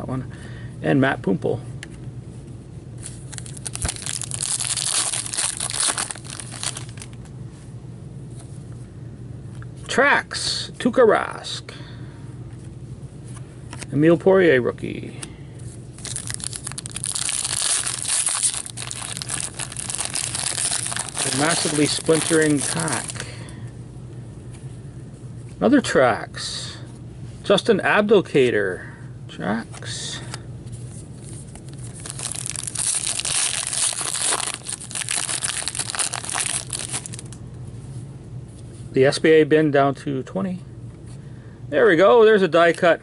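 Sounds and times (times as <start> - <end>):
plastic wrapper crinkling and tearing: 3.0 - 7.2, 16.0 - 23.3, 31.3 - 37.4.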